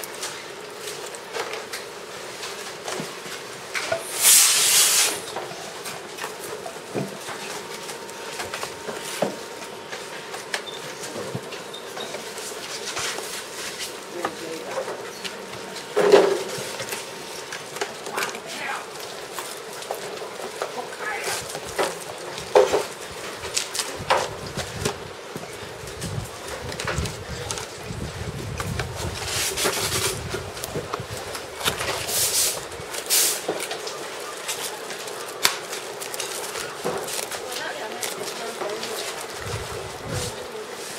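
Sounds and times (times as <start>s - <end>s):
plastic packaging crinkling: 28.8s - 40.8s.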